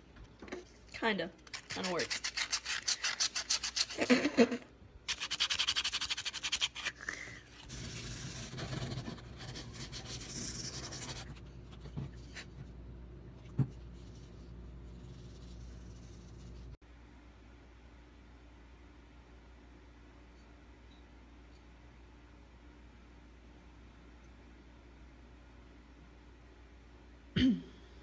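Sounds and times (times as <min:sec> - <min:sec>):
sandpaper rubbing wood: 0:05.1 - 0:07.0.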